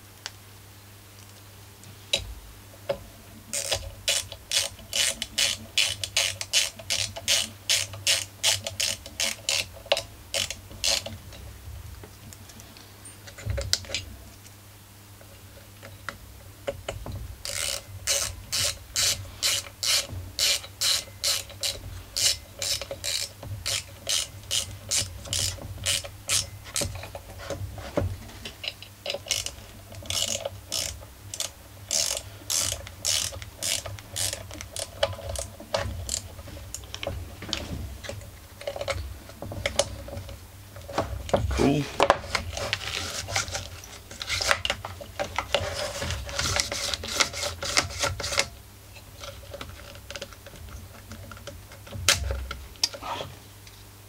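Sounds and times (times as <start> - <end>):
hand ratchet clicking: 3.5 - 11.1, 17.4 - 27.2, 28.6 - 37.1.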